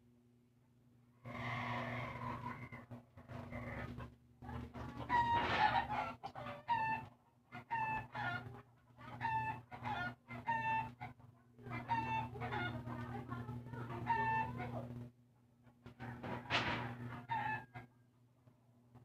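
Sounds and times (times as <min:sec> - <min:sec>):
steady low hum: 0:00.0 - 0:19.0
chickens clucking: 0:01.4 - 0:15.0.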